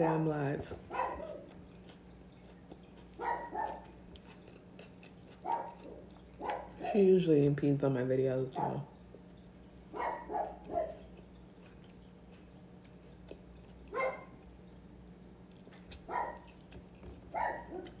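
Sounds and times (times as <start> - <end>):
dog barking: 0.9 - 1.5, 3.2 - 3.9, 5.4 - 7.0, 8.5 - 8.9, 9.9 - 11.1, 13.9 - 14.4, 16.1 - 16.5, 17.3 - 18.0.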